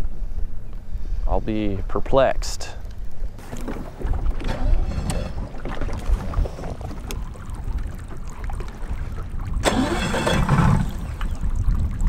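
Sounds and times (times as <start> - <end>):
wind buffeting microphone: 3.0 - 12.0.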